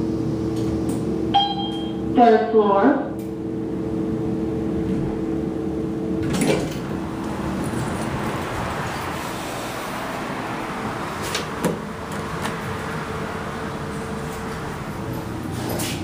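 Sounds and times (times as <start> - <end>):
elevator hum: 0.0 - 16.0
elevator doors sliding open: 6.2 - 16.0.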